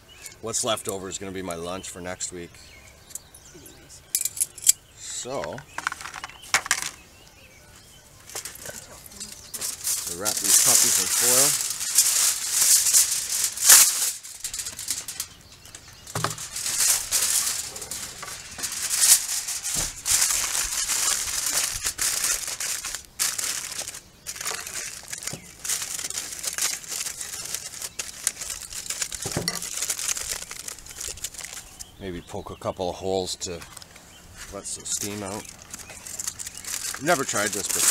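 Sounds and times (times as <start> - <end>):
aluminium foil crinkling: 8.3 - 32.0, 33.6 - 37.9.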